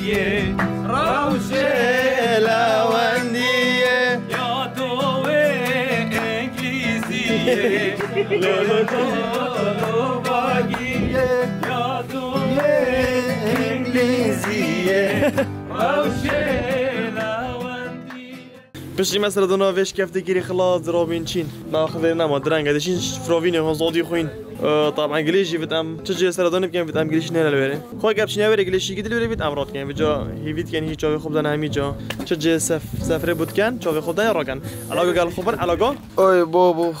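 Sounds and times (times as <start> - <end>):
man singing: 0.0 - 19.3, 20.4 - 30.2
strummed acoustic guitar: 0.0 - 36.2.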